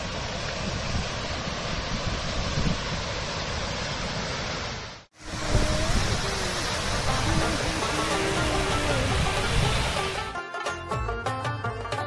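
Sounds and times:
waterfall rushing over rocks: 0.0s - 10.4s
wind rumble on microphone: 0.5s - 3.2s, 5.2s - 10.2s.

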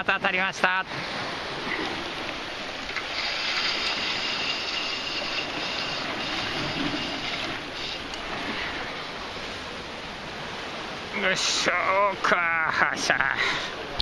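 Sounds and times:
sea washing against rocks: 0.0s - 13.2s.

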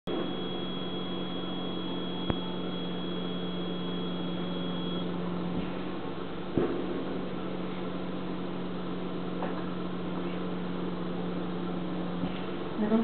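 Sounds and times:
workshop equipment hum: 0.0s - 13.0s
faint high whine: 0.1s - 13.0s.

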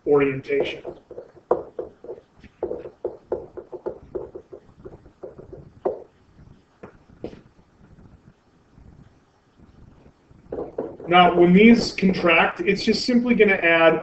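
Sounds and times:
soft irregular taps and knocks: 0.4s - 8.1s, 10.0s - 12.5s.

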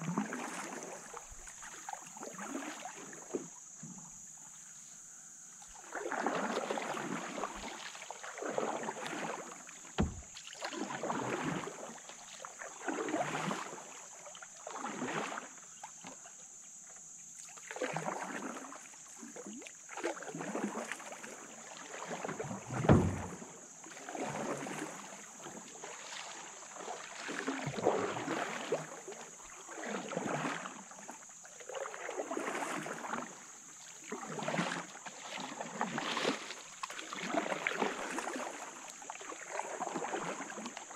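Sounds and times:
paddle swishing through water: 0.0s - 40.9s
dull knocks: 10.0s - 10.4s, 22.8s - 23.4s.

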